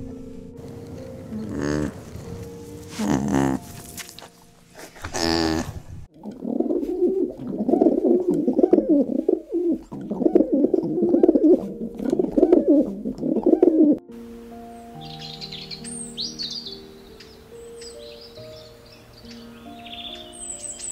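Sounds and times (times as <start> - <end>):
music with held notes: 0.0 - 5.0, 9.6 - 20.9
doves cooing: 0.9 - 3.8, 4.8 - 14.0.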